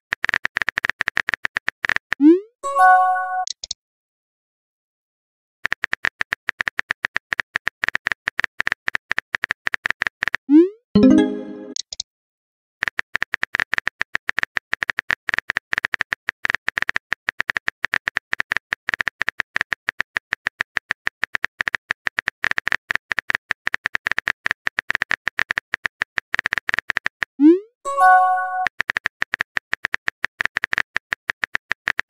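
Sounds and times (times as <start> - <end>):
chat message pop and chime: 2.6 - 3.5, 11.0 - 11.8, 27.9 - 28.7.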